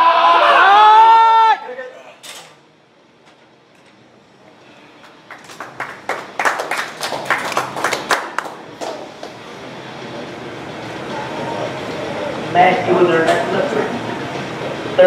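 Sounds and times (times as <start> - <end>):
small group clapping: 5.0 - 9.4.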